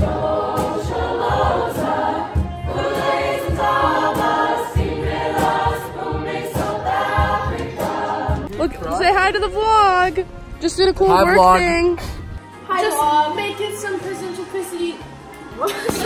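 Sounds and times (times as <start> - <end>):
choir singing: 0.0 - 12.9
low beat: 8.4 - 12.4.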